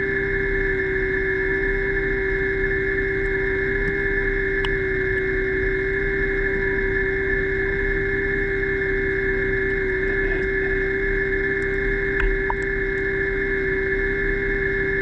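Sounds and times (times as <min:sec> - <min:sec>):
underwater scooter motor whine: 0:00.0 - 0:15.0.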